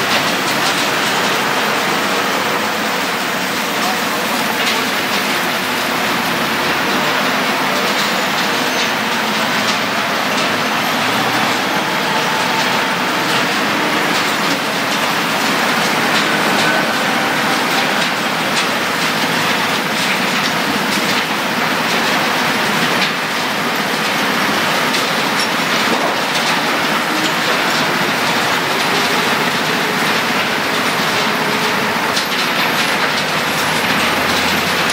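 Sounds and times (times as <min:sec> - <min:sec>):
sorting machinery running: 0:00.0 - 0:34.9
waste rattling in drum: 0:00.0 - 0:34.9.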